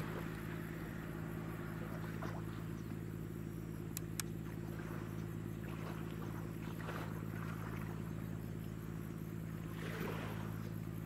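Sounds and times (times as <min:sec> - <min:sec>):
low engine drone: 0:00.0 - 0:11.0
sharp clicks: 0:03.9 - 0:04.3.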